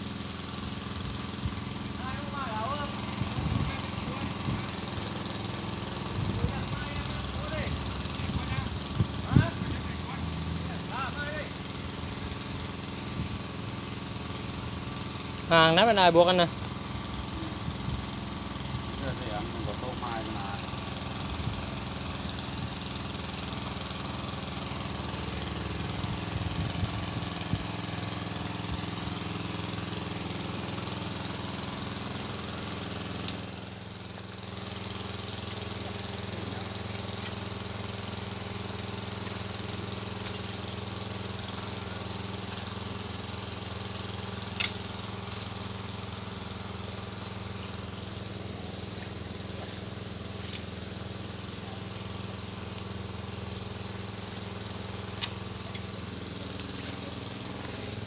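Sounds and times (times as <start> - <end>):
small engine running: 0.0 - 58.0.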